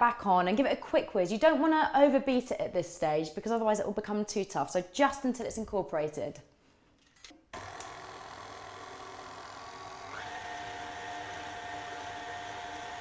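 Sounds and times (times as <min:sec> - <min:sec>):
stand mixer motor whine: 0:07.6 - 0:13.0.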